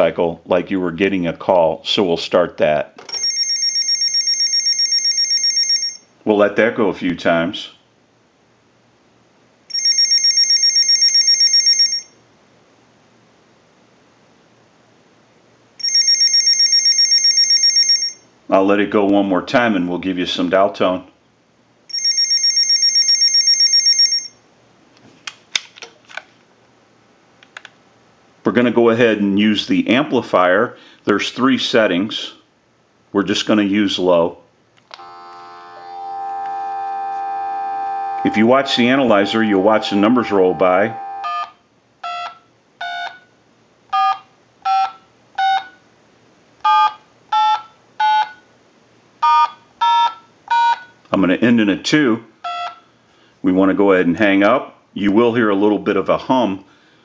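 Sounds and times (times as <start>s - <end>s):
electronic ringer buzzing: 35.0s - 41.6s
two-tone touch tone beeps: 37.9s - 41.5s, 49.2s - 50.9s.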